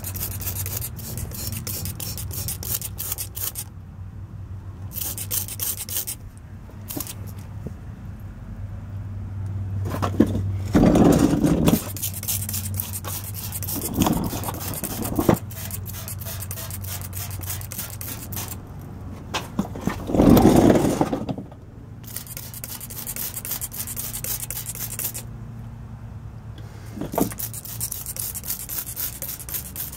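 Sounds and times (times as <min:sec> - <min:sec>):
rough scrape: 0:00.0 - 0:03.7, 0:04.9 - 0:06.2, 0:06.8 - 0:07.5, 0:09.9 - 0:18.6, 0:19.6 - 0:21.4, 0:22.1 - 0:25.3, 0:26.7 - 0:29.9
spray bottle squirting: 0:00.0 - 0:03.7, 0:04.9 - 0:06.2, 0:06.8 - 0:07.4, 0:11.8 - 0:18.6, 0:22.0 - 0:25.3, 0:27.1 - 0:29.9.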